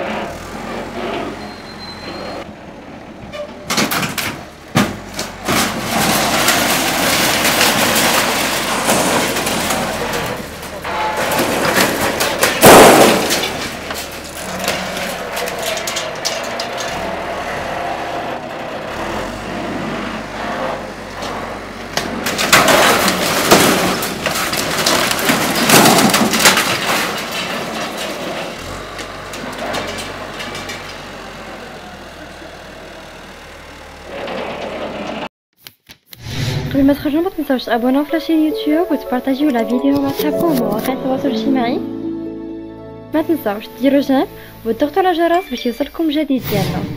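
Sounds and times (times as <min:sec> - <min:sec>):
diesel engine running: 0:00.0 - 0:35.3, 0:36.8 - 0:46.9
crashes of buckling metal: 0:03.7 - 0:17.3, 0:22.0 - 0:31.0.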